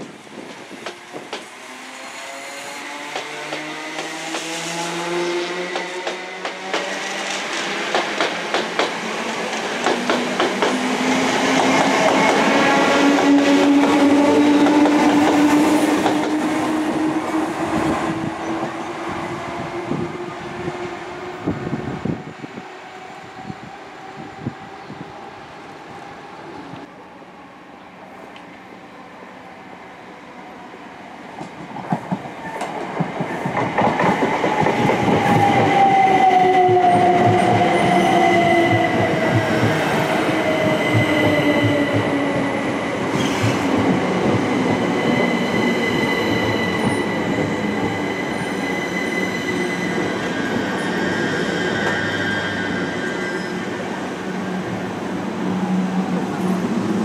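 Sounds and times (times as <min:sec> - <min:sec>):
train braking to a stop: 0:31.8 - 0:57.0
steady high squeal: 0:44.8 - 0:54.6.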